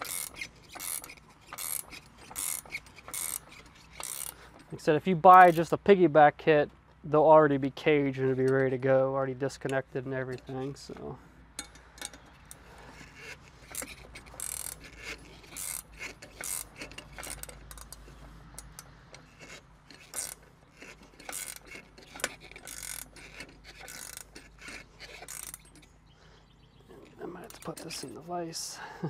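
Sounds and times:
ratchet wrench clicking: 0.0s - 4.4s, 11.6s - 25.9s.

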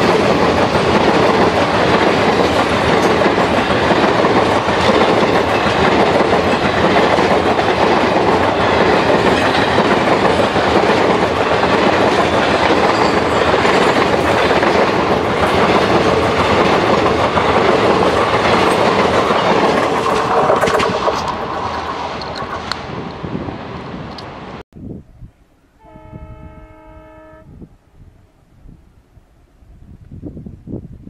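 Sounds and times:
train wheels rushing on rails: 0.0s - 24.6s.

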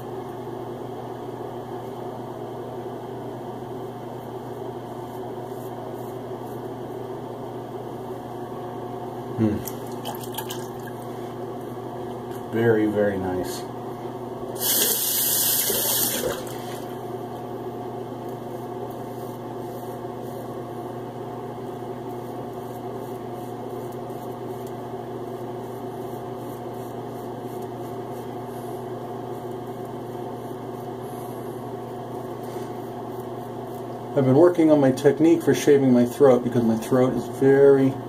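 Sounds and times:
low mechanical hum: 0.0s - 38.0s
tap water running into sink: 14.6s - 16.8s.

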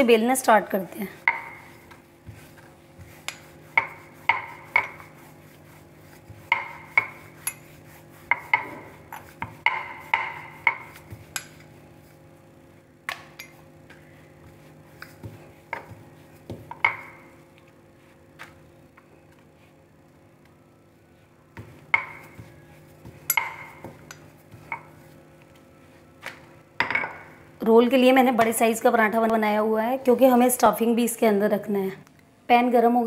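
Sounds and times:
rolling pin knocking on board: 6.4s - 7.2s, 8.3s - 11.2s.

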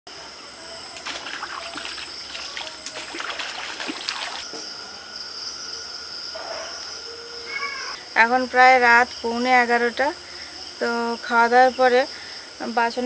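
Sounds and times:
crickets trilling: 0.1s - 13.0s
water trickling and dripping: 1.0s - 4.5s.

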